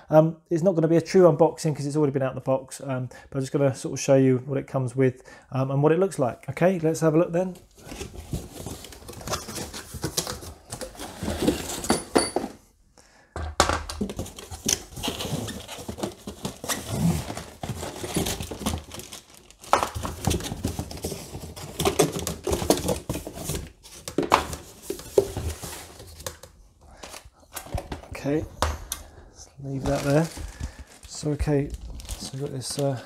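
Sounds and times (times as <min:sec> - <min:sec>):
cardboard rustling and scraping: 0:07.5 - 0:12.2, 0:14.0 - 0:28.4, 0:29.6 - 0:33.0.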